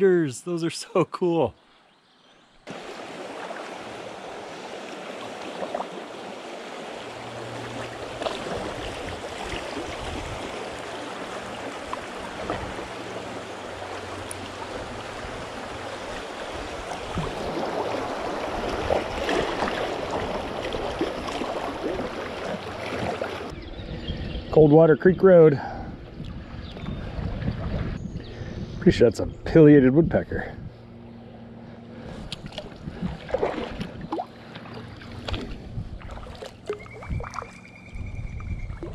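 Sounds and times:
river water rushing and splashing: 2.7 - 23.5.

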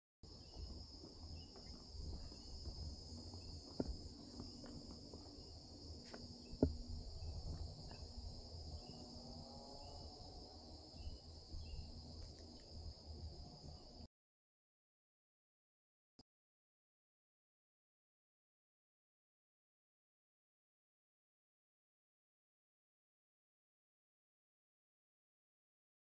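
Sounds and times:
insect chorus trilling: 0.3 - 14.1.

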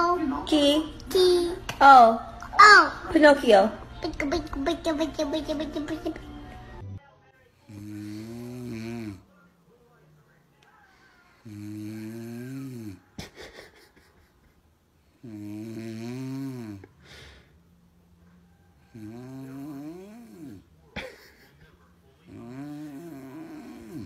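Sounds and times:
woman snoring: 7.7 - 9.2, 11.3 - 13.0, 15.1 - 17.6, 18.5 - 20.7, 22.3 - 24.0
quiet breathing: 10.7 - 13.1, 15.0 - 20.7.

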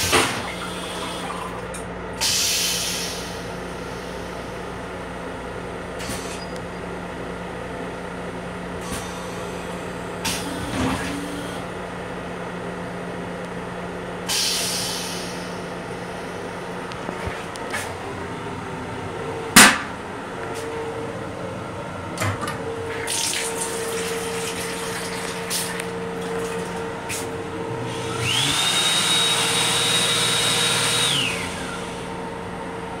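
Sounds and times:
train hum: 0.0 - 33.0
faucet running water into basin: 23.1 - 26.8
electric hand dryer whine: 26.2 - 32.4.

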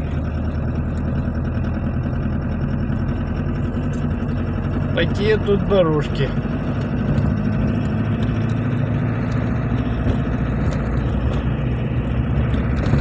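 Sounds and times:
car engine drone from cabin: 0.0 - 13.0
tyres rolling on dirt road: 0.0 - 13.0.

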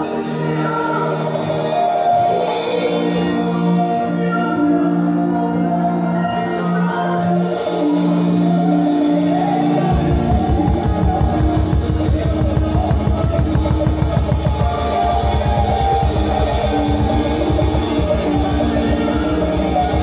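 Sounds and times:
bass guitar: 0.0 - 20.0
choir singing: 0.0 - 20.0
keyboard chords: 0.0 - 20.0
drum kit groove: 7.3 - 20.0.

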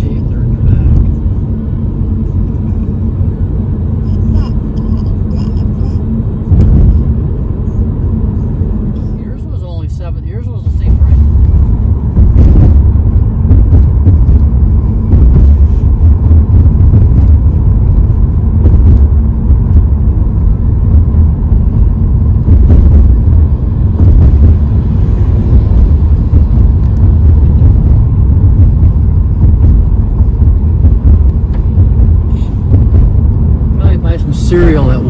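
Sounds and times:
car cabin road rumble: 0.0 - 35.0.

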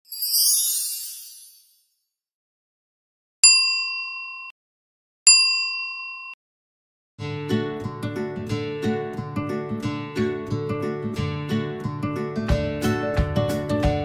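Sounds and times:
high shimmering sparkle: 0.0 - 2.0
bright ding chimes: 3.4 - 4.5.

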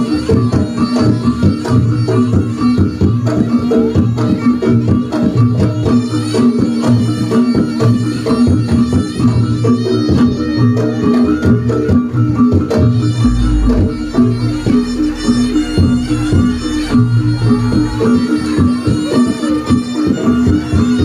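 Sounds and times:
quick drum strokes: 12.8 - 19.9
ringing gong-chime tones: 13.1 - 19.0.

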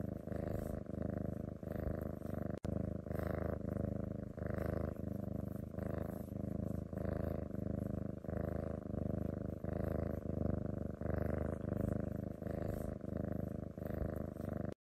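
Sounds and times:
cat purring: 0.0 - 14.8.

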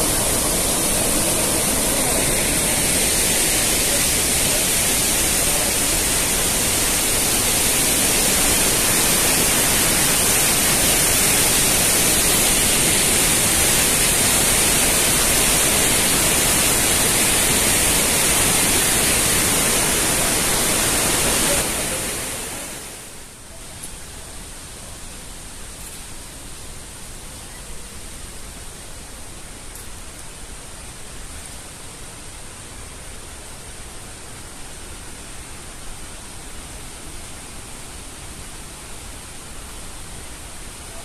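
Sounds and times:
waterfall rushing: 0.0 - 23.4.

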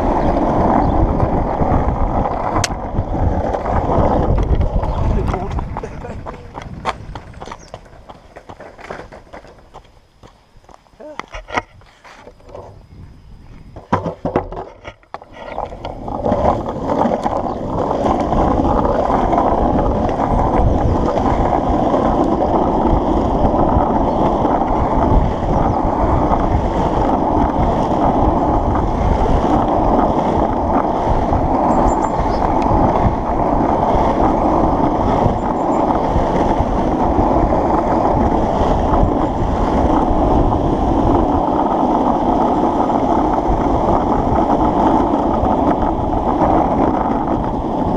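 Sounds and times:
longboard wheels rolling on asphalt: 0.0 - 47.9
board knocking on road: 3.4 - 12.7, 13.7 - 21.6.

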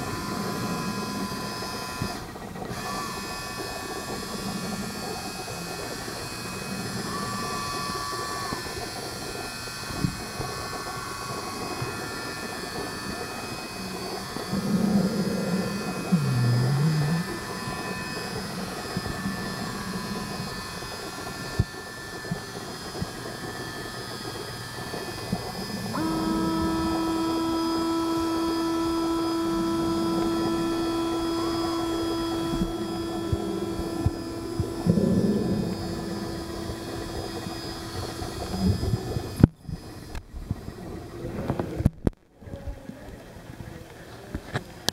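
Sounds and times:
muffled underwater motor whine: 0.0 - 44.9
steady hum: 0.0 - 44.9.

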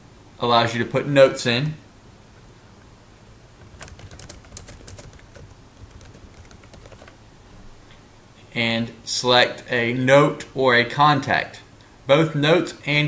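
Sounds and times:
faint steady hum: 0.0 - 13.0
computer keyboard typing: 3.6 - 7.2.

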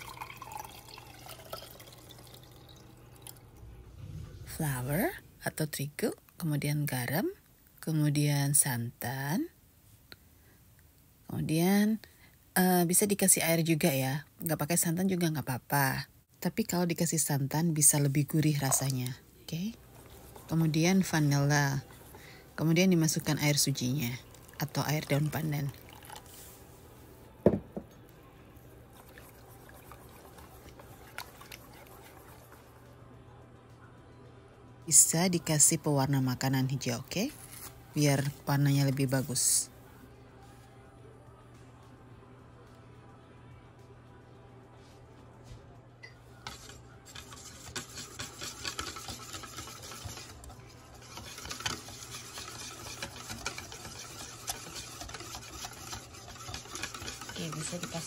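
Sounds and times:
whisk sloshing batter: 17.9 - 26.5, 28.9 - 32.9, 46.4 - 58.0
whisk wires ticking on bowl: 46.5 - 58.0.

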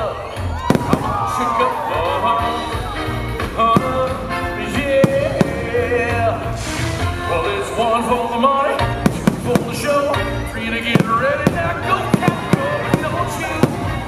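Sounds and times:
rock song with singing: 0.0 - 14.0
fireworks bangs: 0.6 - 1.8, 3.6 - 7.0, 8.9 - 14.0
fireworks hissing crackle: 6.4 - 7.2.

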